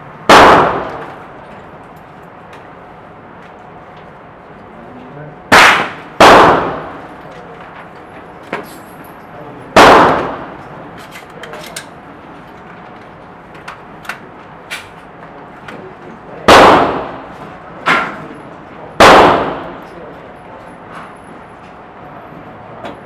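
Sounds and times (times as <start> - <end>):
rifle shots indoors: 0.2 - 1.4, 5.5 - 7.2, 9.7 - 10.7, 16.4 - 18.2, 19.0 - 19.9.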